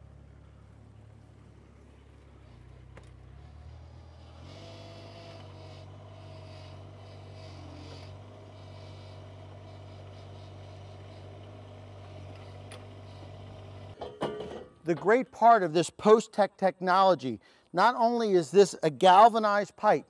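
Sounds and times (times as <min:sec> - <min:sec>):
excavator engine running: 0:00.0 - 0:14.0.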